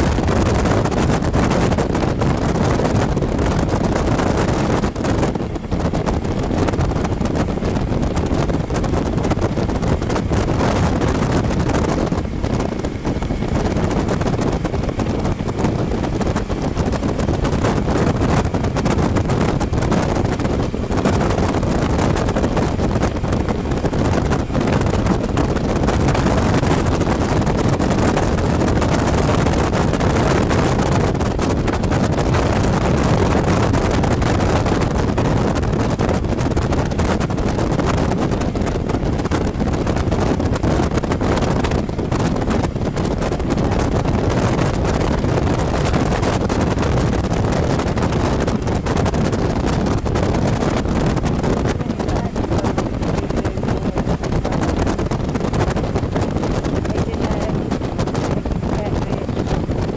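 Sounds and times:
motorcycle engine: 0.0 - 59.6
road noise: 0.0 - 59.9
wind buffeting microphone: 0.0 - 59.9.

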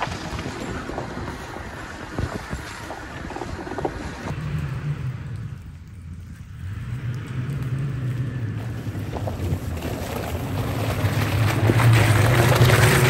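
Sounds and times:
truck engine droning: 0.0 - 13.0.

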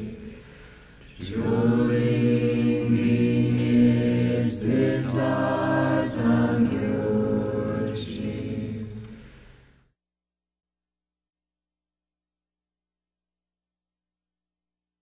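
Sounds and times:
low-voiced chanting: 0.0 - 9.2.

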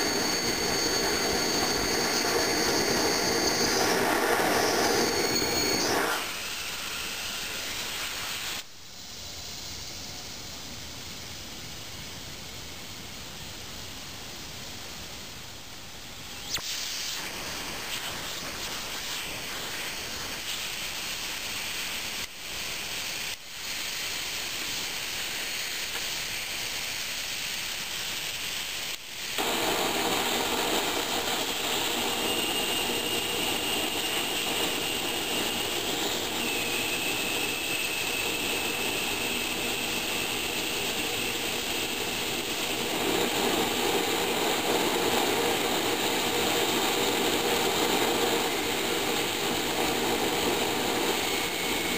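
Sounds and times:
oil burner roaring: 0.0 - 8.6, 29.4 - 51.9
faint whistle: 0.0 - 10.4, 31.6 - 42.0, 50.4 - 51.9.

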